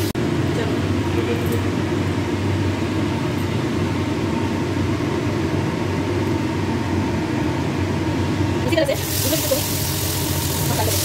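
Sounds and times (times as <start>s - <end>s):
chicken sizzling in a pan: 9.0s - 11.0s.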